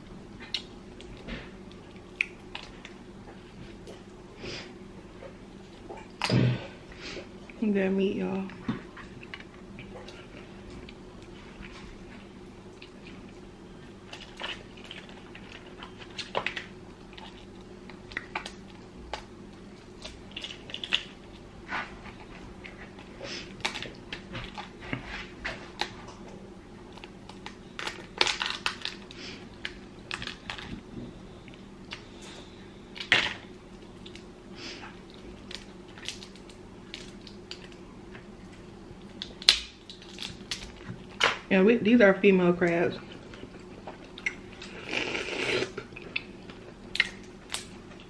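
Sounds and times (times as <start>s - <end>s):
crab shell cracking: 27.0s - 30.7s, 39.1s - 41.4s.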